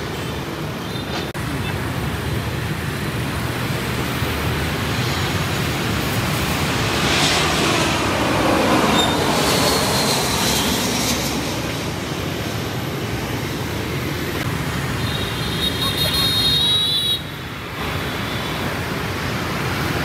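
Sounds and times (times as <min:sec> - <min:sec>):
jet airliner passing overhead: 0:00.0 - 0:16.1
street traffic: 0:00.0 - 0:20.0
falling jet whine: 0:04.7 - 0:14.2.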